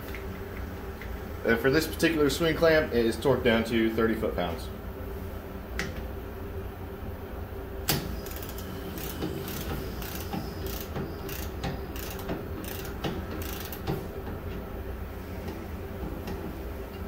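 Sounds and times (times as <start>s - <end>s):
torque wrench ratchet clicking: 8.2s - 13.9s.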